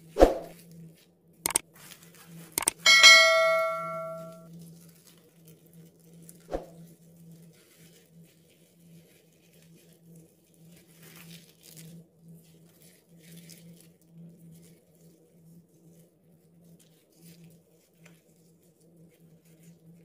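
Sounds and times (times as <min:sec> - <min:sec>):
flatbread tearing and rustling: 0:07.0 - 0:20.0.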